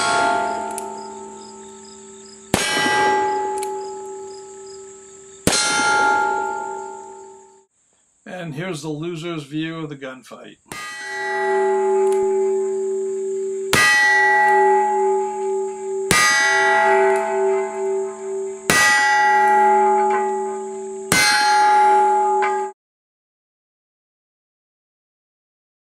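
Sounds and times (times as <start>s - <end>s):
metallic bell-like ringing: 0.0s - 7.7s, 10.7s - 22.8s.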